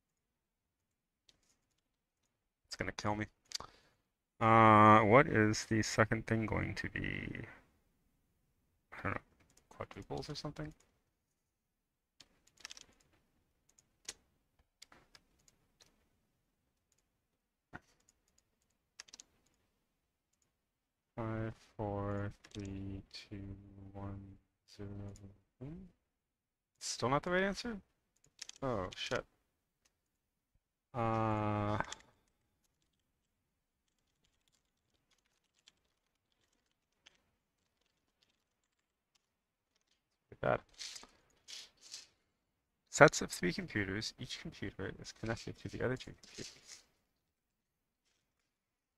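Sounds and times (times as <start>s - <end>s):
keyboard and mouse clicks: 9.3s - 10.9s, 12.2s - 16.1s, 17.8s - 19.7s, 22.1s - 22.8s, 28.2s - 29.2s, 33.8s - 42.1s.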